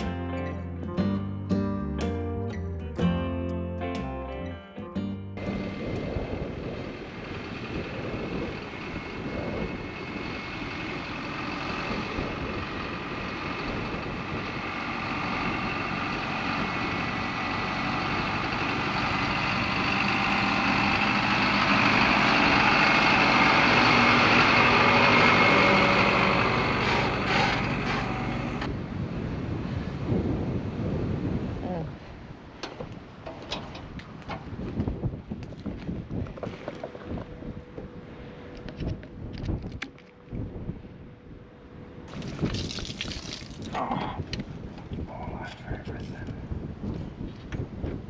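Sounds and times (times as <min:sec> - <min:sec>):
truck diesel engine: 0:00.0 - 0:29.3
tyres on dirt track: 0:05.4 - 0:31.5, 0:32.2 - 0:48.0.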